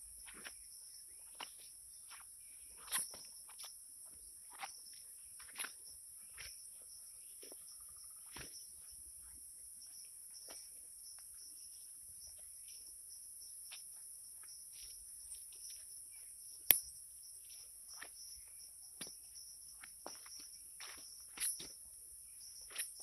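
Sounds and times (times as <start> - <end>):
insects chirping: 0.0 - 23.0
footsteps scuffing on soil: 14.4 - 16.0, 19.0 - 21.8
sharp click: 16.7 - 16.9.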